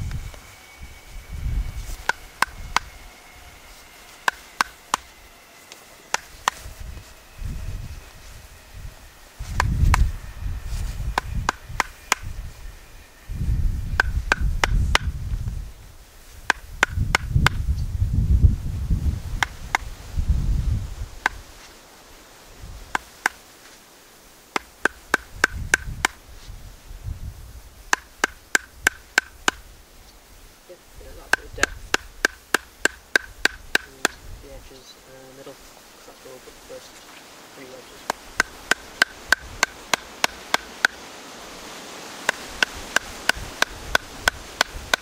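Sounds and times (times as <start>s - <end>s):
mallet knocking on chisel: 14.0s - 15.1s.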